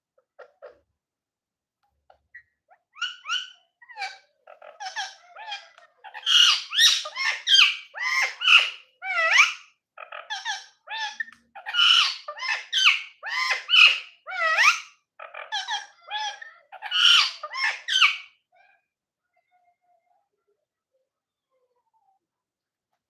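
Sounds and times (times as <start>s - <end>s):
parakeet chattering: 0.2s - 0.8s, 2.1s - 18.3s.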